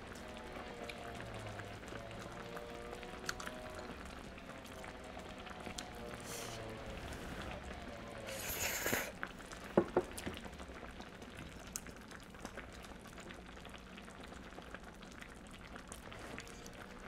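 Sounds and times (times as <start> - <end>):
close chewing with wet clicks: 0.0 - 4.3
slurping noodles: 8.2 - 9.2.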